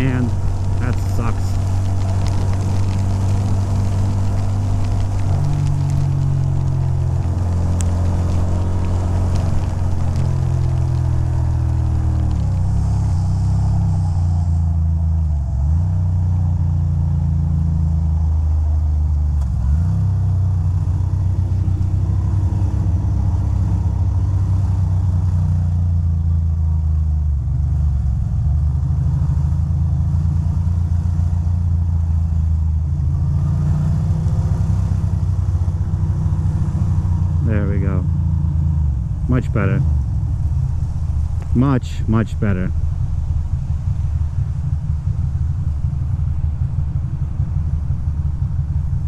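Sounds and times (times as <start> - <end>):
motorcycle engine running: 0.0 - 15.3, 42.4 - 49.0.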